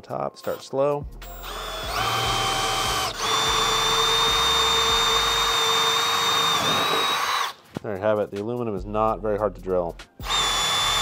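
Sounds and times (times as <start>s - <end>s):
drill motor whine boring metal: 1.3s - 7.6s, 10.2s - 11.0s.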